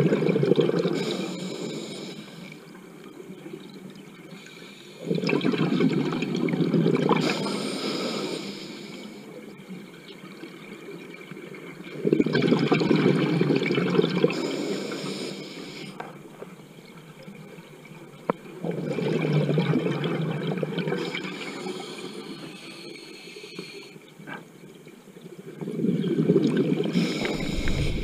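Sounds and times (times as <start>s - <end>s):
regulator inhale hiss: 1.0s - 2.6s, 4.4s - 5.1s, 7.2s - 9.3s, 14.4s - 16.0s, 21.0s - 24.0s, 26.9s - 28.0s
exhaled bubbles rushing underwater: 25.7s - 28.0s.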